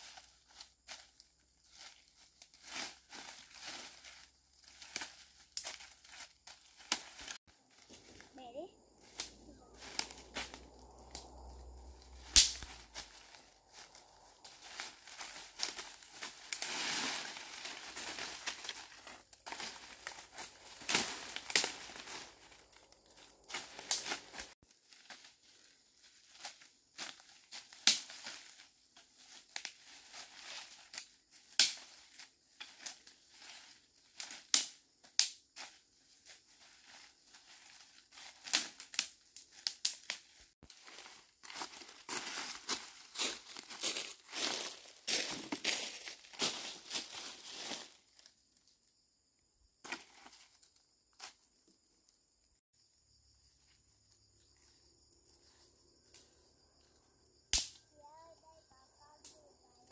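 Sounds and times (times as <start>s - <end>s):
sharp snaps: 12.2s - 13.1s, 57.5s - 57.8s.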